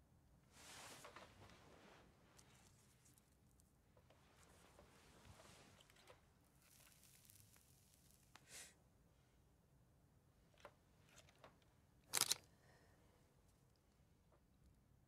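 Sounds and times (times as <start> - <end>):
faint rustles and ticks: 0.6 - 8.5.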